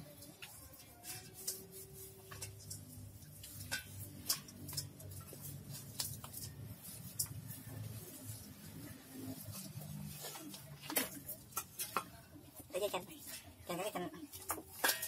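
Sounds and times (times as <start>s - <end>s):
clicks and taps on metal bowl: 14.3s - 15.0s.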